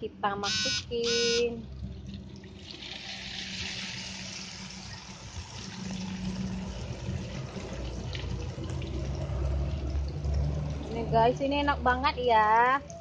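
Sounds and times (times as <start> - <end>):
cracker sizzling in hot oil: 2.6 - 8.0.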